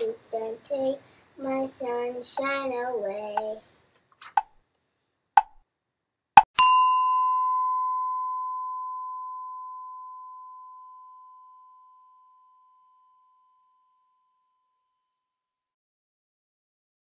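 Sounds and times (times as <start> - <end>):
bell-like tone ringing: 6.6 - 14.3.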